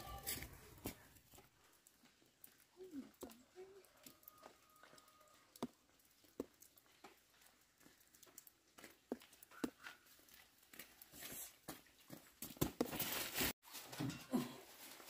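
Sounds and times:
footsteps on dirt: 0:00.0 - 0:02.6, 0:04.4 - 0:13.6.

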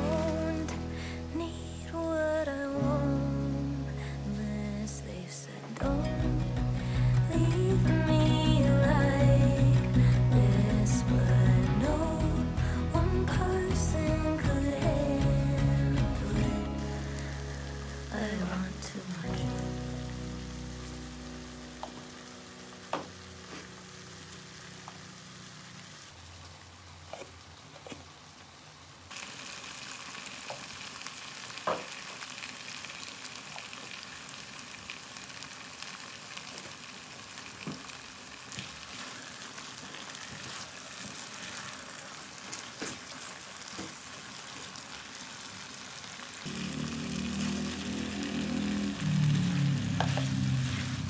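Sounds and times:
food sizzling in a wok: 0:00.0 - 0:01.4, 0:14.4 - 0:51.0.

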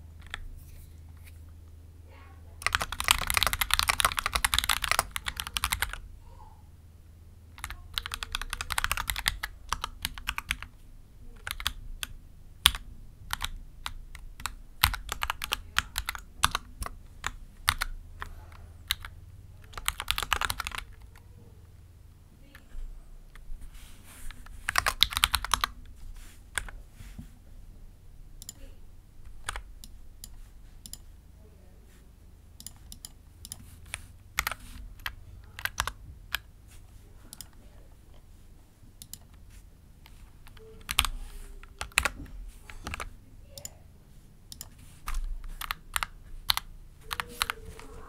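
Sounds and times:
mechanical keyboard typing: 0:00.2 - 0:00.4, 0:02.6 - 0:06.0, 0:07.5 - 0:21.2, 0:24.4 - 0:25.8, 0:26.5 - 0:26.8, 0:29.2 - 0:31.1, 0:32.6 - 0:36.5, 0:39.0 - 0:39.4, 0:40.0 - 0:43.7, 0:44.5 - 0:48.0.

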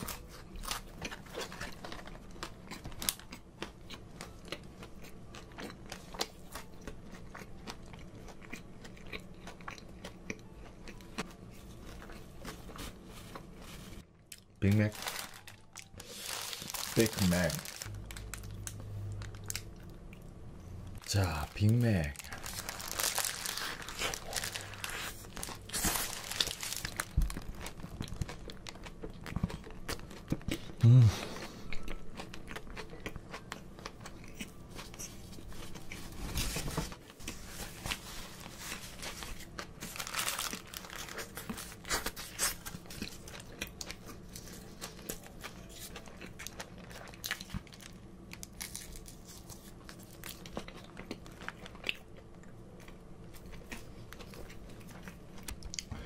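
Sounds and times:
person chewing a burger: 0:00.0 - 0:20.3, 0:22.2 - 0:56.0
paper wrapper crinkling: 0:14.6 - 0:19.7, 0:21.0 - 0:28.8, 0:35.3 - 0:43.4.

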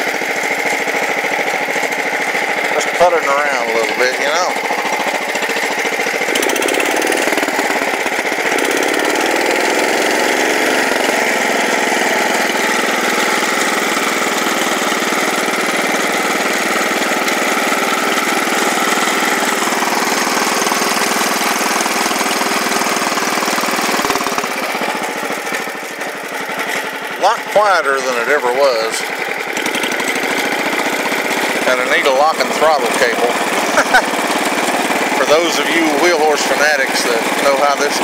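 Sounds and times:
garden tractor engine running: 0:00.0 - 0:38.0.

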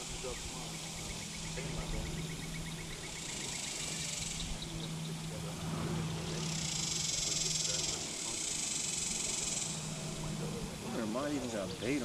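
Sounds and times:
fast ticking insect call: 0:00.0 - 0:12.0
insects buzzing: 0:00.0 - 0:12.0
steady low hum: 0:00.0 - 0:12.0.

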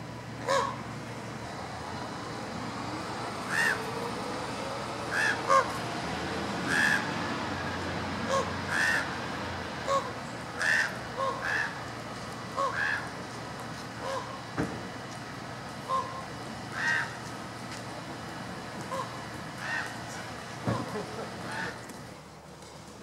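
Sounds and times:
ravens cawing: 0:00.4 - 0:00.8, 0:03.4 - 0:03.9, 0:05.0 - 0:05.8, 0:06.6 - 0:07.3, 0:08.2 - 0:09.2, 0:09.8 - 0:11.8, 0:12.5 - 0:13.2, 0:14.0 - 0:14.4, 0:15.9 - 0:17.2, 0:18.9 - 0:20.2.

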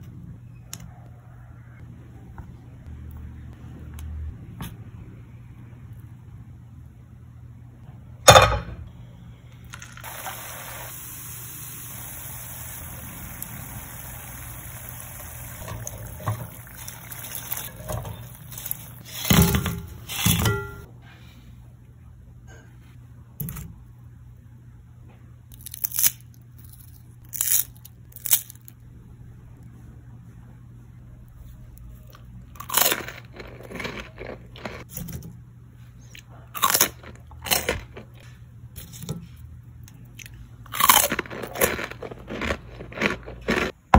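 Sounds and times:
oil sizzling while frying: 0:10.0 - 0:19.1.

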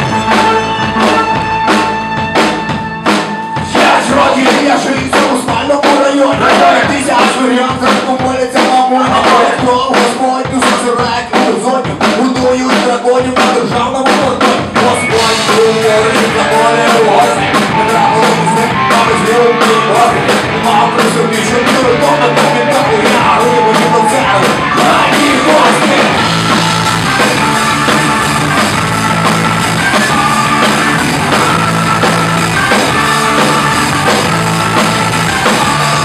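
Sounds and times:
person singing: 0:00.0 - 0:01.4, 0:03.6 - 0:26.8
electric guitars: 0:00.0 - 0:09.8, 0:14.4 - 0:36.0
drum kit beat: 0:00.0 - 0:36.0.

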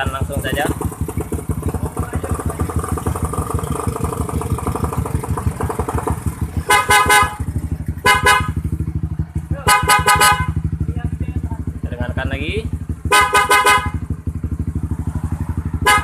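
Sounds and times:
motorcycle engine idling: 0:00.0 - 0:16.0
motorcycle horn blasts: 0:06.6 - 0:08.7, 0:09.6 - 0:10.8, 0:13.0 - 0:14.2, 0:15.8 - 0:16.0.

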